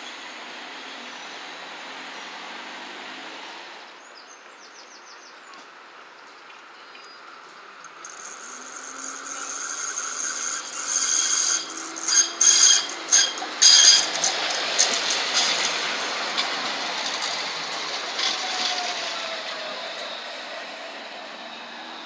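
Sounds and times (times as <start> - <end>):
tram rolling rumble: 0.0 - 4.0, 7.2 - 22.0
tram wheels squealing on rails: 7.7 - 22.0.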